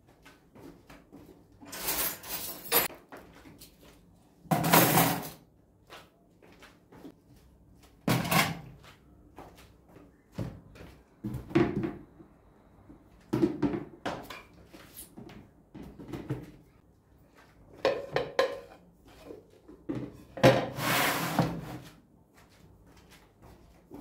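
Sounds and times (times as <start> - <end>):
plastic containers knocking: 13.3 - 14.3.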